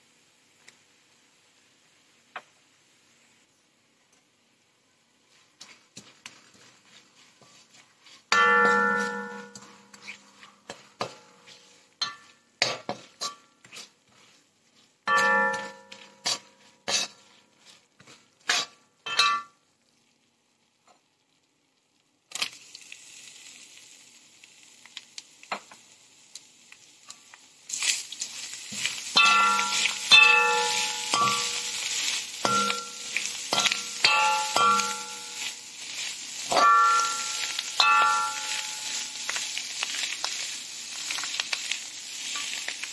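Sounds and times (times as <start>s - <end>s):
hiss of food frying: 0.0s - 20.0s, 22.2s - 42.9s
spoon knocking and scraping wok: 5.6s - 14.4s, 15.1s - 19.6s, 28.7s - 40.4s.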